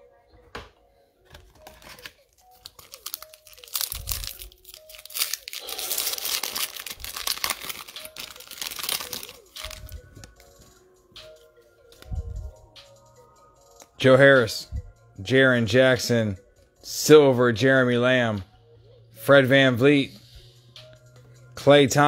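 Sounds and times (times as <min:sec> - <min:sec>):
foil wrapper tearing and crinkling: 0:01.4 - 0:10.0.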